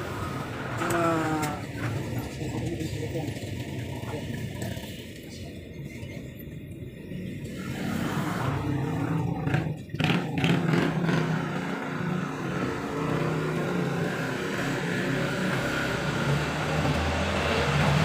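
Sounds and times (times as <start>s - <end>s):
engine running: 7.2s - 18.0s.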